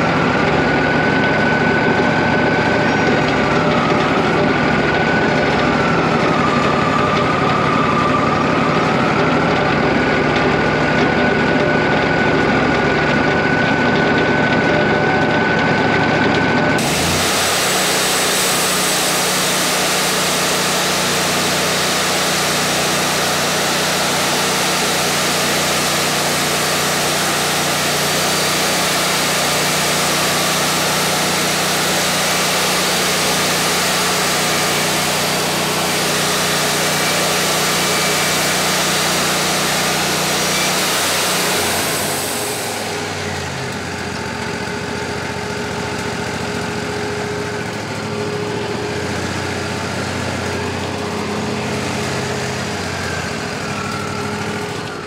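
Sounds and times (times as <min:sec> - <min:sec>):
sawmill engine running: 0:00.0 - 0:55.0
band saw blade cutting wood: 0:16.8 - 0:43.8.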